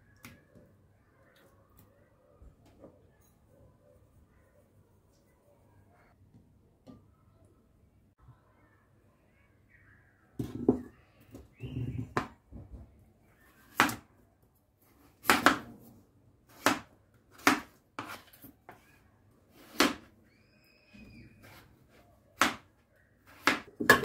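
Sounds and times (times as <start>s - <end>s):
knife cutting potatoes on board: 15.0s - 15.7s, 16.5s - 18.8s, 19.5s - 20.1s, 21.4s - 24.0s.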